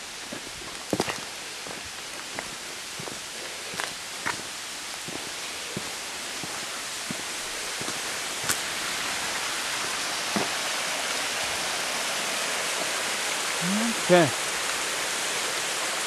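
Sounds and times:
stream and waterfall rushing: 0.0s - 16.0s
footsteps on trail: 0.3s - 8.7s.

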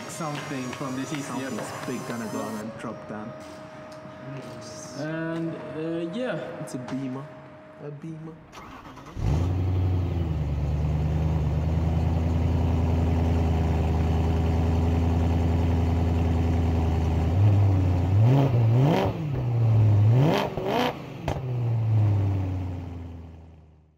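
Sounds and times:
car engine idling: 8.4s - 20.2s
engine revving: 8.5s - 23.4s.

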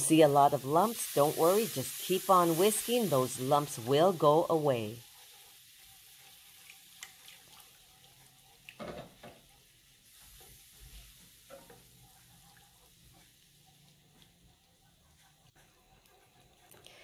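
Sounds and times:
light sizzle: 0.0s - 17.0s
whisk scraping a frying pan: 3.9s - 8.4s.

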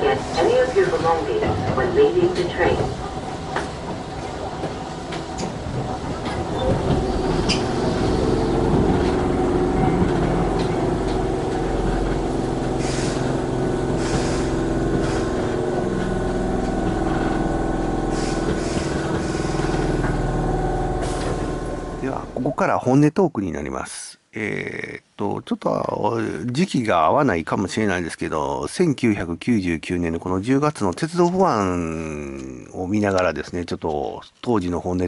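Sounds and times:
electric train motors humming: 0.0s - 22.6s
train rumbling: 0.0s - 22.8s.

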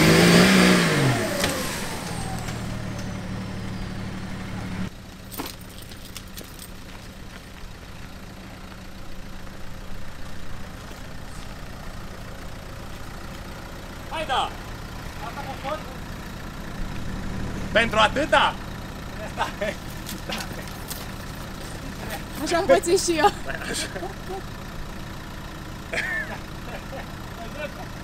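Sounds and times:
off-road engine revving hard: 0.0s - 4.9s, 10.6s - 28.0s
car engine running low: 0.0s - 28.0s.

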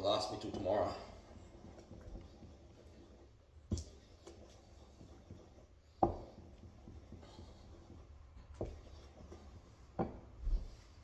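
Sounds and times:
utensil knocking on bowl: 10.0s - 10.2s.

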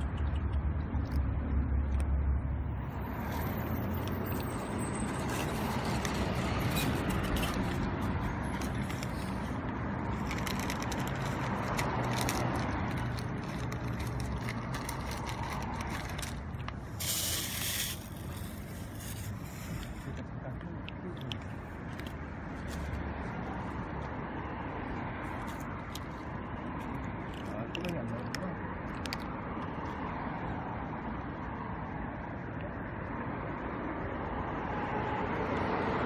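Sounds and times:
road traffic passing: 0.0s - 36.0s
kittens chewing dry kibble: 5.2s - 22.9s, 27.2s - 29.3s
short hiss: 17.0s - 19.2s.

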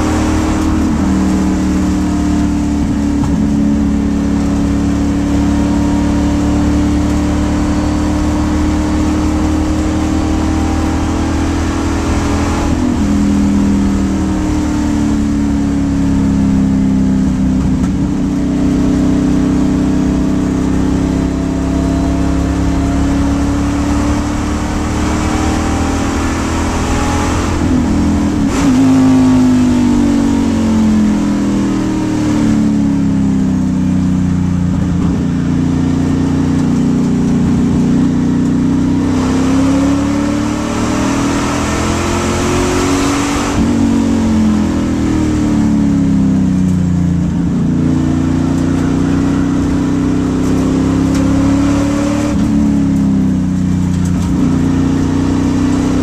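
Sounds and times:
race car engine running hard: 0.0s - 56.0s.

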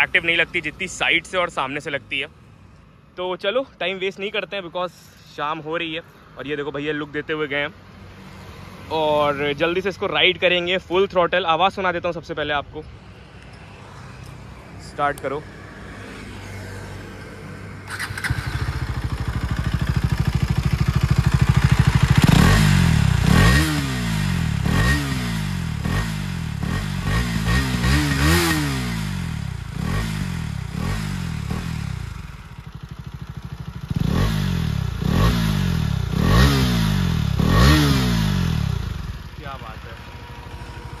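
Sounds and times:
motorcycle engine revving: 17.8s - 41.0s.

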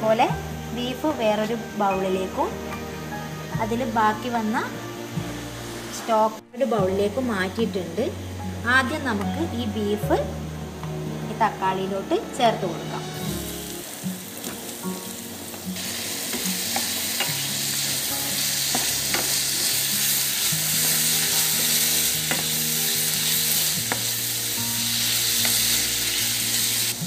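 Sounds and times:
meat sizzling in oil: 13.2s - 27.0s.

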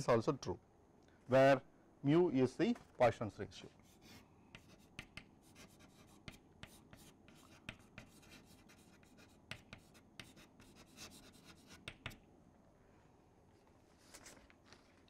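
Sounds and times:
chalk tapping and scratching: 3.8s - 12.2s.

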